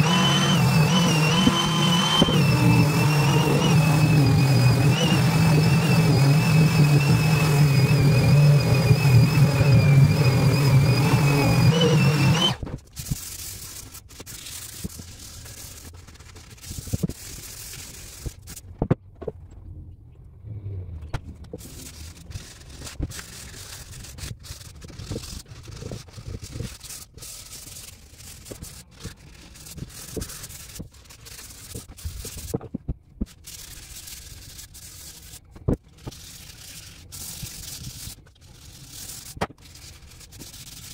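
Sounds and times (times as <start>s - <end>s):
detail sander motor whining: 0.0s - 12.6s.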